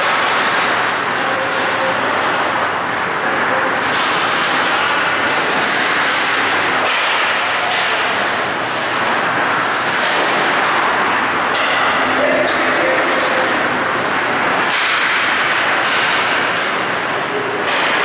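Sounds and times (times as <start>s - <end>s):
ice rink hiss and rumble: 0.0s - 18.0s.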